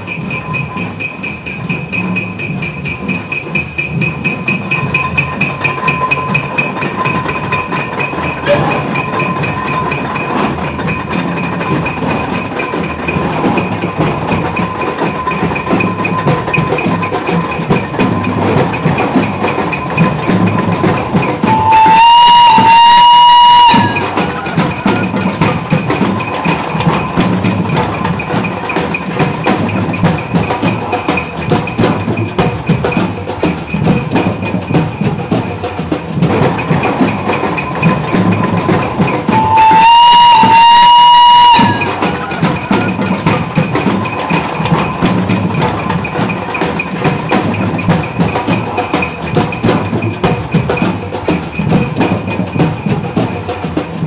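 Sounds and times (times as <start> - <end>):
continuous clattering din: 0.0 - 54.0
steam whistle blast: 21.4 - 25.5, 39.2 - 43.4.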